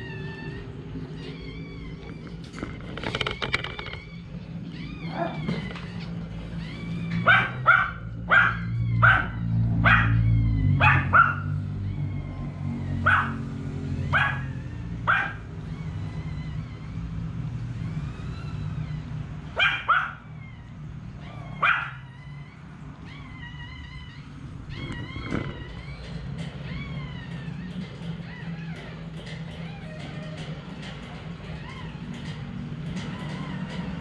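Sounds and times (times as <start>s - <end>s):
small dog barking: 7.2s - 10.2s, 10.8s - 11.5s, 13.0s - 13.4s, 14.1s - 15.4s, 19.6s - 20.2s, 21.6s - 22.0s.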